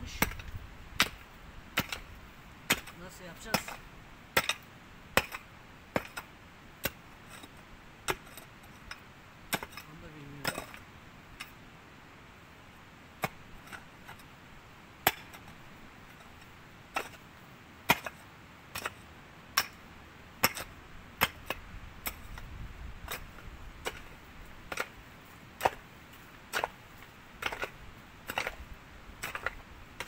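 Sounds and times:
metal tool striking ground: 1.8 - 2.1, 2.7 - 3.8, 8.1 - 10.8, 20.4 - 22.5, 23.1 - 25.0, 27.4 - 28.6, 29.2 - 30.0.

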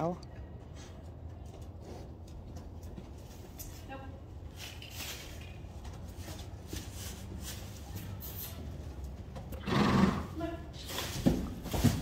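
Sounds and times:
hooves and footsteps in sand: 0.5 - 9.5.

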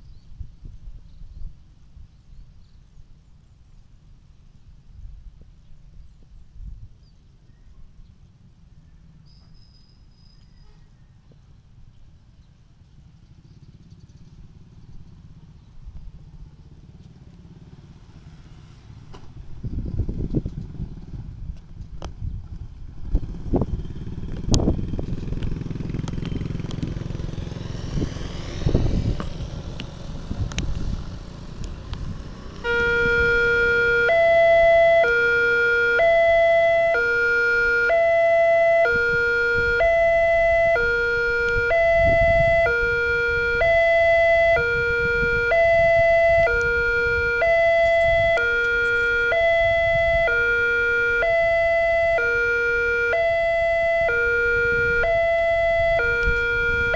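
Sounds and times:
motorcycles passing: 11.5 - 56.9
two-tone crossing alarm: 32.6 - 56.9.

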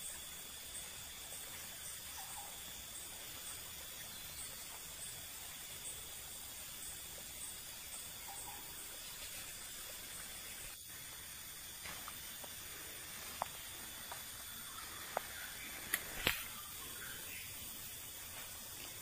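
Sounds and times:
faint high insect-like chirps: 0.0 - 19.0
outdoor background hiss: 0.0 - 19.0
short sharp clicks: 15.9 - 16.6.

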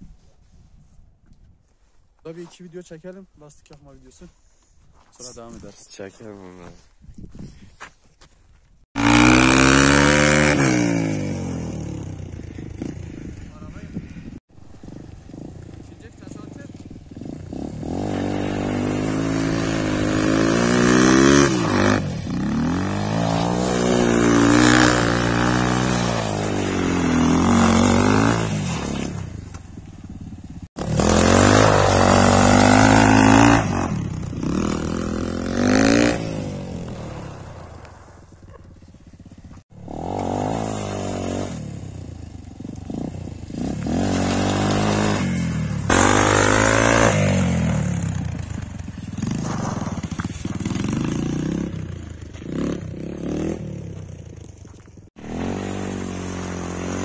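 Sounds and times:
motorcycle engine revving: 9.0 - 57.0
rear tyre spinning: 48.1 - 51.6.

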